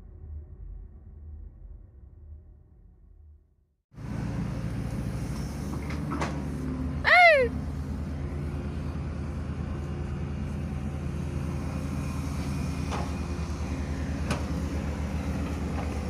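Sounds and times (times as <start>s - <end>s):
excavator diesel engine running: 4.0s - 16.0s.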